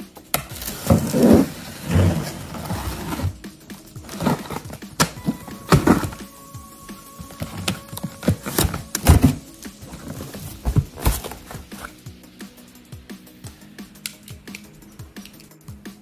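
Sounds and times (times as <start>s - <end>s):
cardboard scraping and rustling: 0.6s - 3.4s, 4.0s - 6.2s, 7.3s - 12.0s
knocks and thumps on box: 10.0s - 11.9s.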